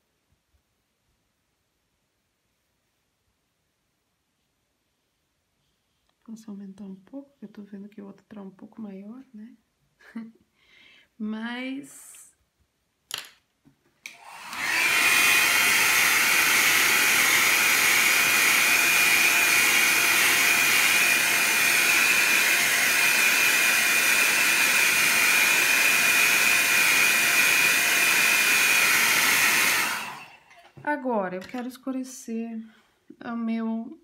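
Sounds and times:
hair dryer whining: 14.0s - 30.8s.

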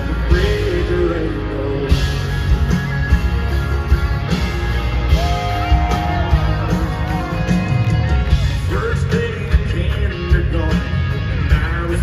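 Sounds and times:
acoustic and electric guitars: 0.0s - 12.0s
drum beat: 2.5s - 10.4s.

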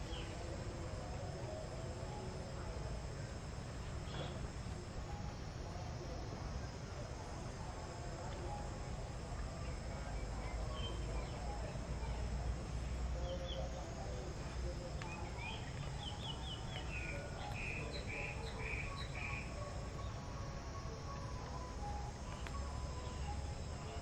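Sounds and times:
small birds chirping: 0.0s - 0.4s, 9.6s - 20.3s.

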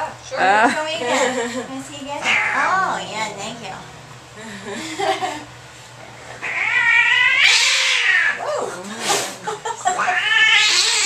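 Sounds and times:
cat hissing: 2.2s - 2.7s, 6.4s - 8.4s, 10.0s - 11.0s
cat yowling: 2.2s - 2.9s, 6.4s - 8.6s, 10.0s - 11.0s.

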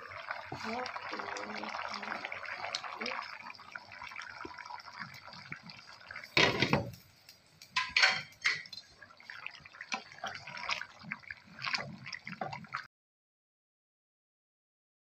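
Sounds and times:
curry bubbling in pan: 0.0s - 12.9s
wooden spatula stirring: 7.8s - 12.8s.

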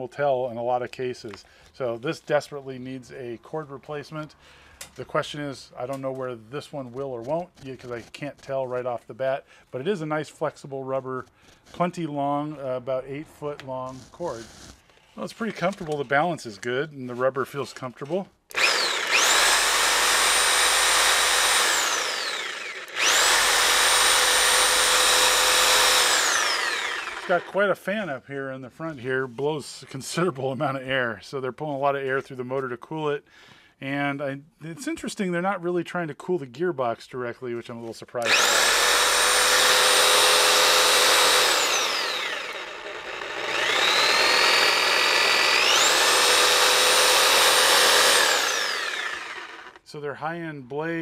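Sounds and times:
reciprocating saw motor whine: 18.5s - 27.6s, 38.2s - 49.8s.

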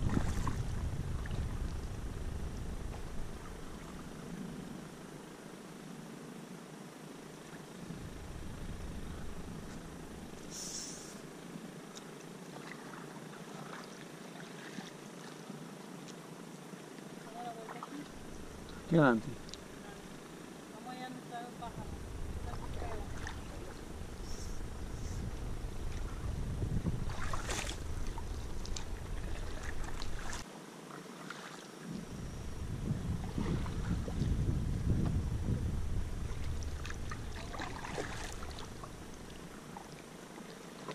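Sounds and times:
paddle splashes and drips: 0.0s - 1.7s, 12.4s - 15.5s, 26.9s - 31.8s, 36.2s - 40.9s
wind rumbling on microphone: 0.0s - 5.4s, 7.6s - 11.4s, 18.0s - 20.6s, 21.6s - 30.4s, 31.9s - 40.4s
electric motor humming: 7.8s - 11.3s, 18.1s - 20.5s, 21.6s - 30.4s, 31.9s - 40.0s
water ticks: 18.1s - 20.2s, 22.0s - 30.4s, 35.8s - 40.9s.

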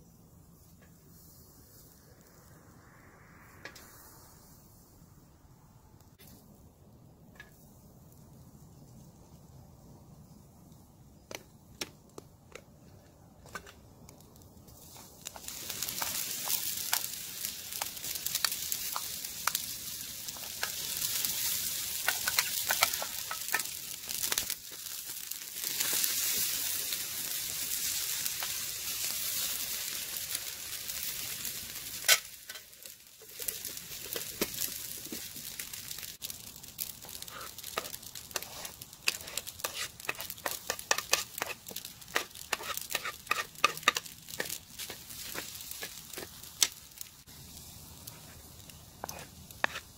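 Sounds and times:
pasta sizzling in metal tray: 14.7s - 49.9s.

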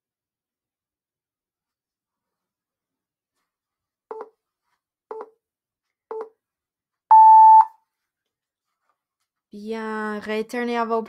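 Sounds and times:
long high timer beep: 7.1s - 7.7s
short timer beeps: 7.1s - 7.7s.

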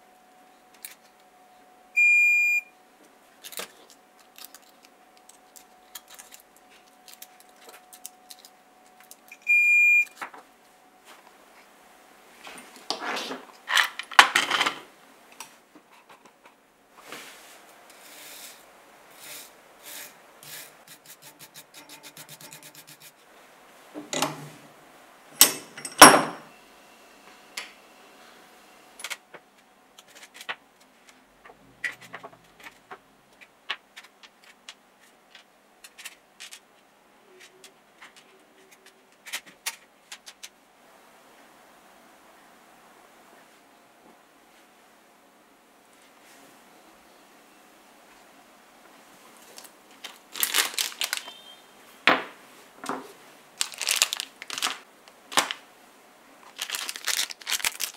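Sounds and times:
metal parts clicking and tapping: 25.4s - 26.5s.

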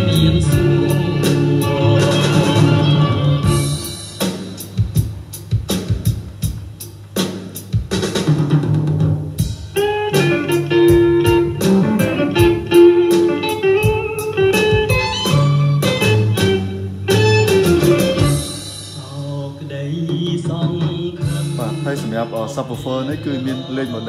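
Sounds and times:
blues guitar music with drums: 0.0s - 19.0s, 20.0s - 24.0s.

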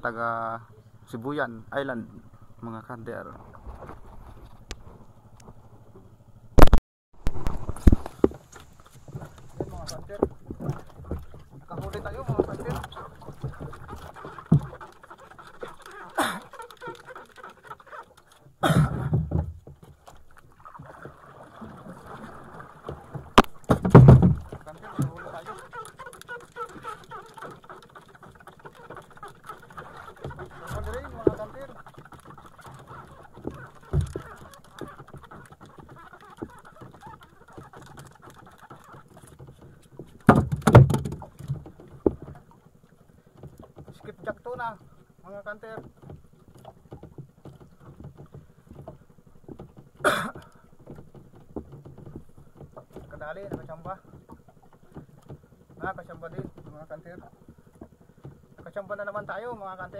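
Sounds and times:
water lapping against boat hull: 0.0s - 6.6s, 7.2s - 59.9s
knocks: 18.7s - 20.0s, 23.2s - 25.1s, 40.2s - 42.4s.

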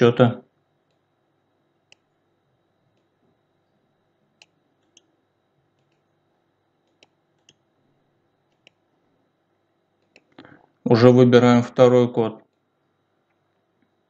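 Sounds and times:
faint computer mouse clicks: 1.9s - 2.1s, 4.4s - 5.1s, 6.8s - 7.6s, 8.5s - 8.8s, 10.0s - 10.4s.

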